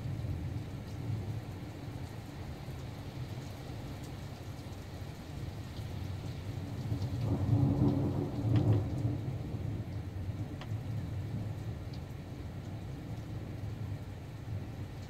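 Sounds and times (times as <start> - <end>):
steady rain: 0.0 - 15.0
thunder rumbling: 7.0 - 10.4.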